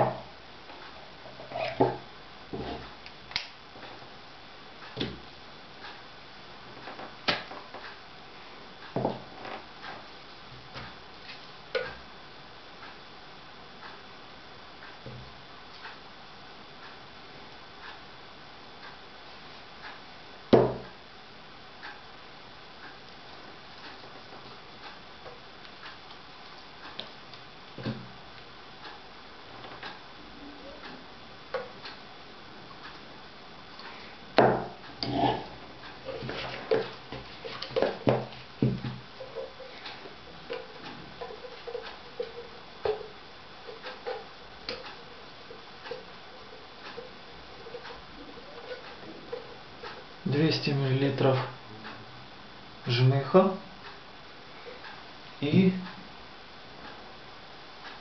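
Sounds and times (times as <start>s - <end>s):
clock ticking: 38.8s - 52.0s.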